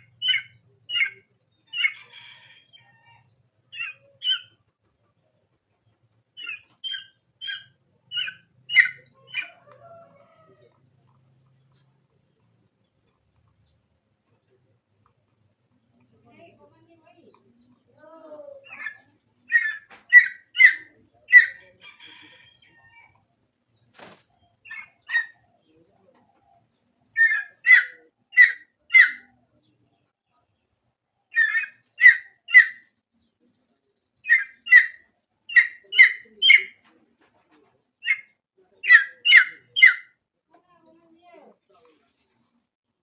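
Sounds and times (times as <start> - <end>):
junglefowl calls: 0.0 - 4.8, 6.4 - 11.2, 18.6 - 23.2, 26.2 - 29.4, 31.3 - 32.9, 34.2 - 37.0, 38.0 - 40.2.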